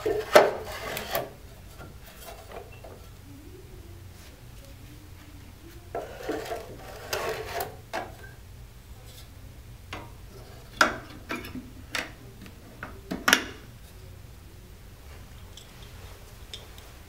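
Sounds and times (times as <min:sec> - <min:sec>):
battery packs scraping: 0:00.0 - 0:01.4, 0:06.0 - 0:07.8.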